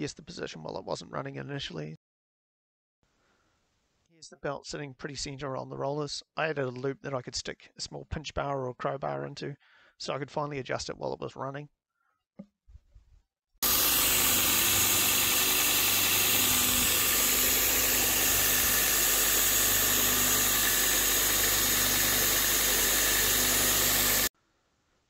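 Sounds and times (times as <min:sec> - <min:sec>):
electric motor humming: 0:13.6 - 0:24.3
sanding belt hissing: 0:13.6 - 0:24.3.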